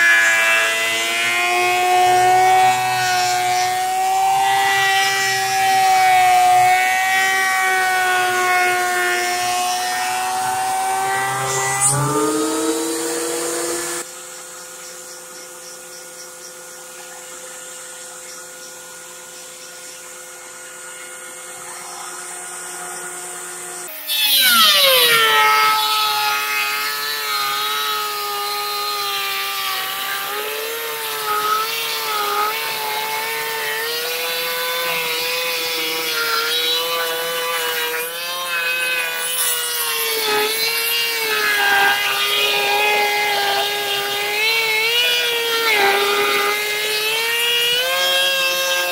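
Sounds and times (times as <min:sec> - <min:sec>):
planer cutting a board: 0:00.0 - 0:14.1, 0:19.7 - 0:48.9
thickness planer humming: 0:00.0 - 0:14.1, 0:19.8 - 0:48.9.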